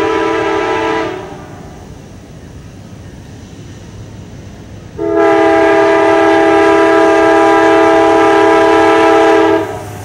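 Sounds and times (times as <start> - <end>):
locomotive air horn: 0.0 - 1.4, 5.0 - 9.9
low rumble of train: 0.0 - 10.0.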